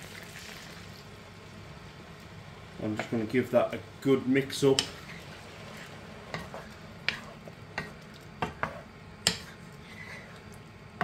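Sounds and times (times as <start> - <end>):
sauce sizzling: 0.0 - 11.0
wooden spatula knocking and scraping: 4.6 - 10.4.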